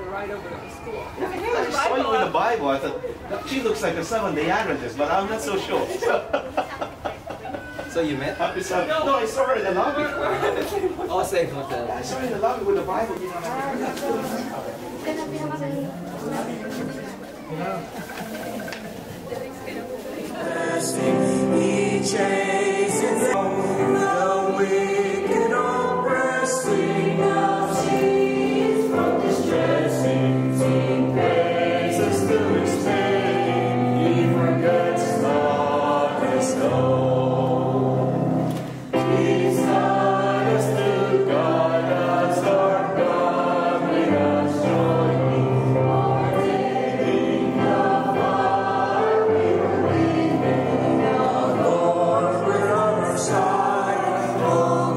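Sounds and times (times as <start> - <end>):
mixed choir singing a hymn: 1.2 - 12.6, 17.9 - 54.9
digital piano: 20.3 - 54.9.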